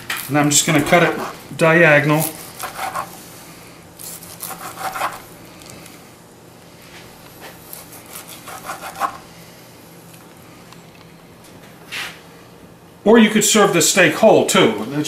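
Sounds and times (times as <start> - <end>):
knife sawing through steak: 2.1 - 3.2, 4.0 - 5.3, 7.7 - 9.3.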